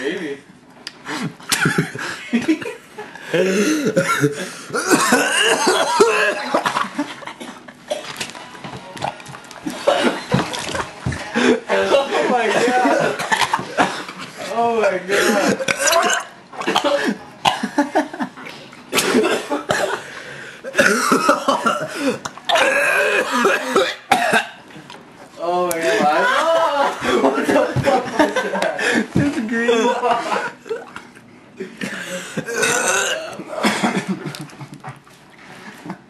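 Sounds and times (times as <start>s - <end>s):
person coughing: 3.4s - 6.6s, 9.7s - 10.6s, 18.9s - 24.6s, 31.8s - 34.1s.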